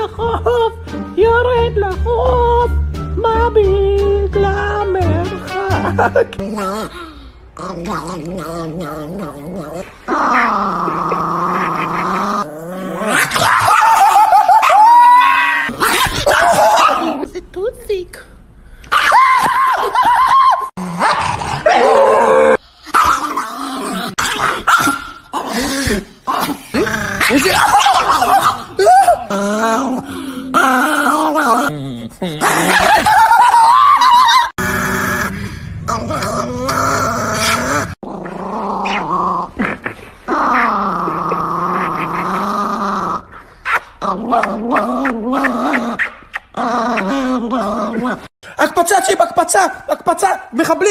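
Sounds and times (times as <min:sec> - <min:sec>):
small dog growling: 0:06.4 - 0:13.8, 0:34.6 - 0:48.3
small dog yapping: 0:13.2 - 0:17.2, 0:24.6 - 0:25.2.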